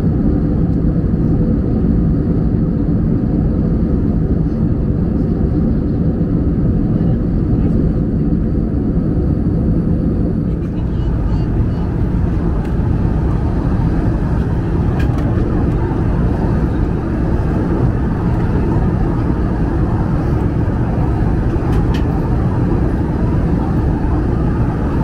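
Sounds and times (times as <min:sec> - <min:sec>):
airplane cabin drone: 0:00.0 - 0:25.0.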